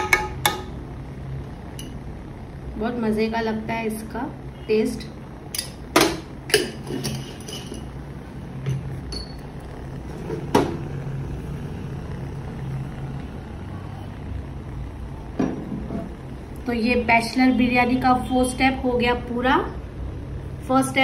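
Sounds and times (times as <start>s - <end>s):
steady low hum: 0.0s - 21.0s
metal utensils clinking on pot: 6.5s - 7.9s.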